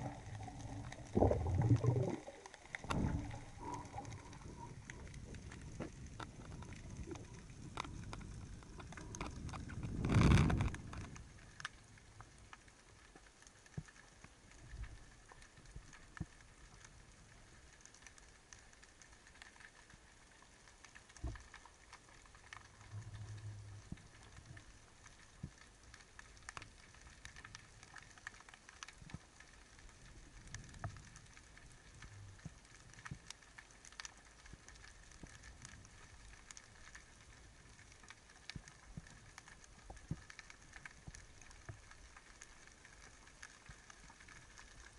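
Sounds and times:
low rush of water: 0.0 - 11.1
underwater clicks and pops: 0.0 - 11.7.

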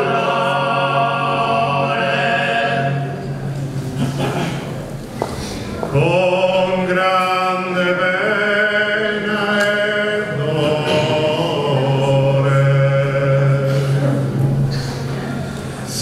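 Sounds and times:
men singing in close harmony: 0.0 - 3.3, 5.9 - 14.4.

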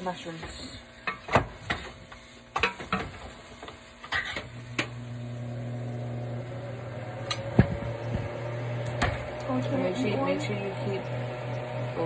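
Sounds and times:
electric can opener motor humming: 4.4 - 12.0.

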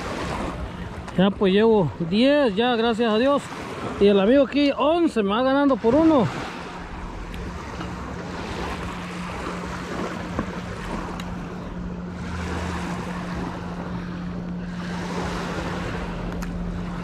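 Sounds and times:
water lapping at shore: 0.0 - 17.0
wind: 0.0 - 17.0
steady low hum: 4.9 - 17.0.

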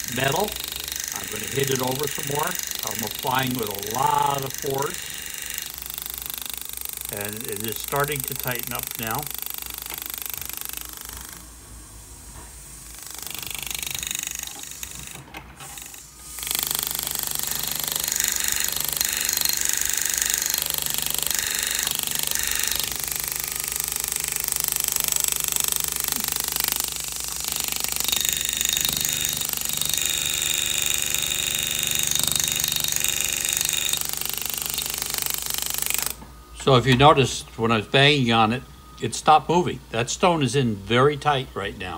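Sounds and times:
pneumatic hammer buzzing rattle: 0.0 - 38.6.

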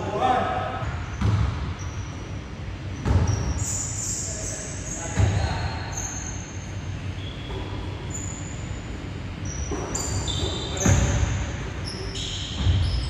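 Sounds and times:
sneakers squeaking: 0.8 - 13.0
basketball bouncing on hardwood: 3.0 - 3.4.

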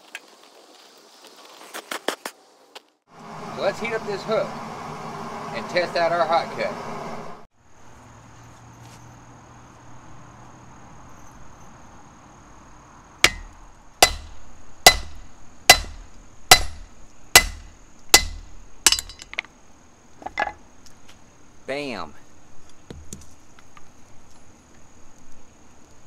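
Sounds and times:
hammer striking hot steel on anvil: 13.2 - 19.3.

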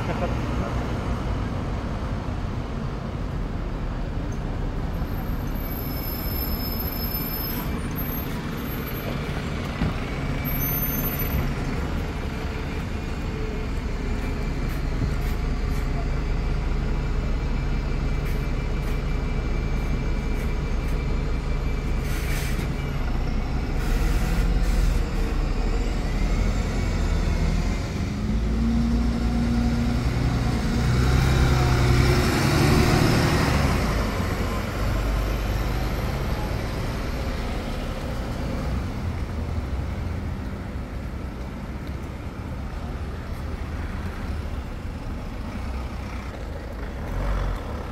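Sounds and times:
bus engines humming: 0.0 - 47.9.

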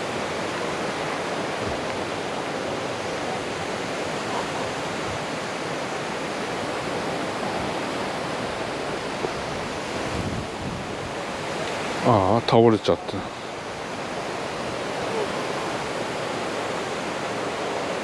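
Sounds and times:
steady wind: 0.0 - 18.0.

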